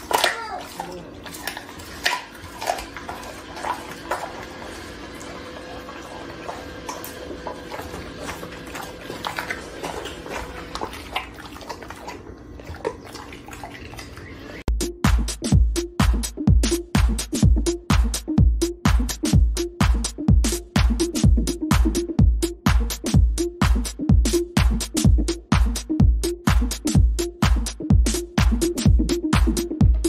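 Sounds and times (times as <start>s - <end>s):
dog licking and chewing food: 0.0s - 14.7s
electronic dance music: 14.7s - 30.0s.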